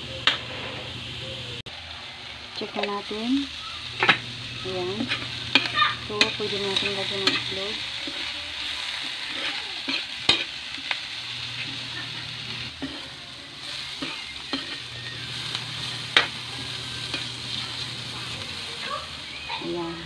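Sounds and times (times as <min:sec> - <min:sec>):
vegetables sizzling in hot oil: 0:00.0 - 0:20.0
metal spatula scraping wok: 0:03.9 - 0:18.7
spatula clinking against wok: 0:05.0 - 0:08.4, 0:09.3 - 0:11.0, 0:13.9 - 0:15.0.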